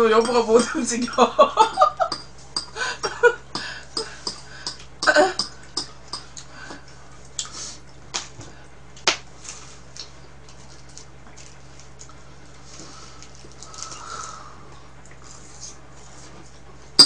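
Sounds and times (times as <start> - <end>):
woman laughing: 1.0 - 2.2, 2.8 - 3.4, 5.0 - 5.4.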